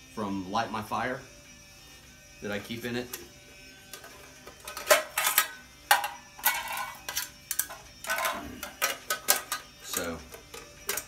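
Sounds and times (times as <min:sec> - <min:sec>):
metal mess kit clinking: 0:03.9 - 0:11.0.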